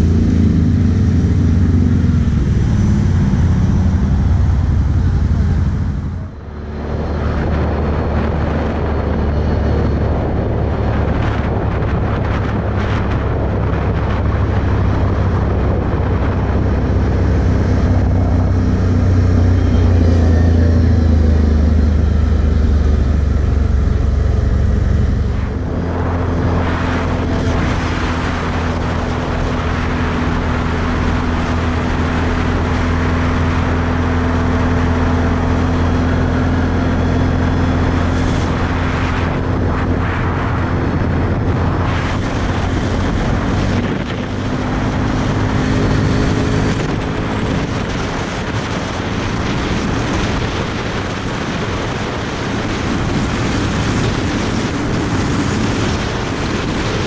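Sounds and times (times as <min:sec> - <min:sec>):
atv engine running: 0:00.0 - 0:57.0
steady rushing noise: 0:00.0 - 0:57.0.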